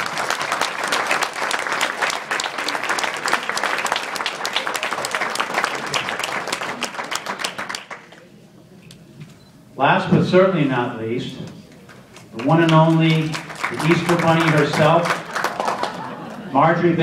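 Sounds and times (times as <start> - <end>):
audience applauding: 0.0 - 8.2, 12.1 - 16.4
close claps: 0.0 - 8.2, 11.7 - 16.1.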